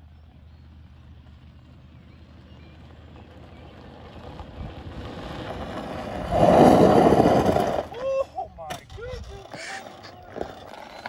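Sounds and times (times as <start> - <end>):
tyres on gravel: 0.0 - 11.0
golf cart motor hum: 0.1 - 7.9.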